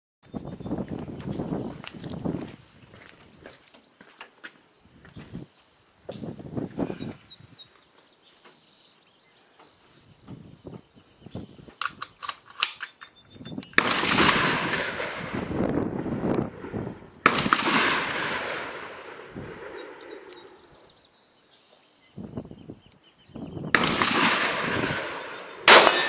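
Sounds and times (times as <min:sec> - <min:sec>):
sharp clicks: 0:11.7 - 0:14.9
rifle shots with echo: 0:13.8 - 0:15.5, 0:16.5 - 0:20.3, 0:23.7 - 0:26.0.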